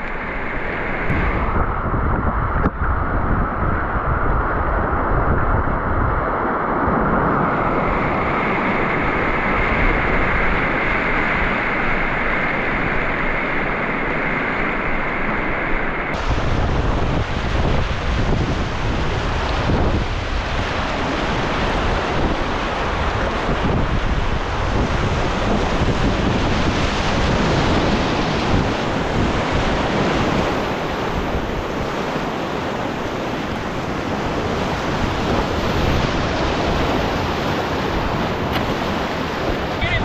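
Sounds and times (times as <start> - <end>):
wind buffeting microphone: 0.0 - 40.0
river rapids rushing: 34.3 - 40.0.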